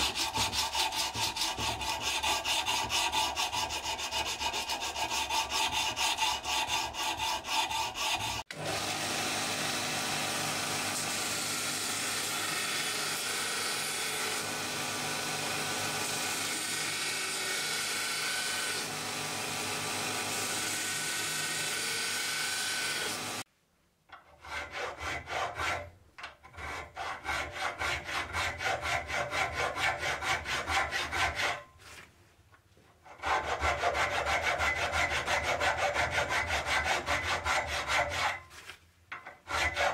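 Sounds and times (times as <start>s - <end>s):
blade sanded with abrasive cloth: 0.0s - 8.5s
hand file rasping on metal: 0.0s - 8.6s, 24.1s - 32.0s, 33.0s - 39.9s.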